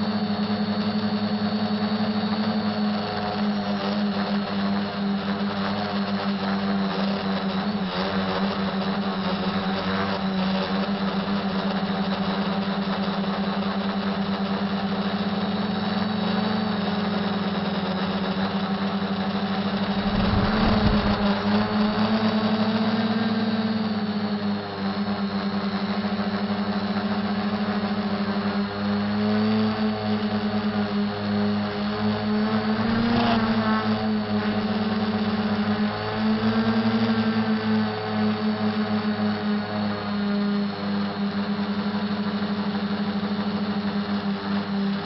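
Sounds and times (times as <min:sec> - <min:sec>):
quadcopter motors humming: 0:00.0 - 0:45.0
short rough noise burst: 0:19.8 - 0:22.5, 0:32.6 - 0:34.2.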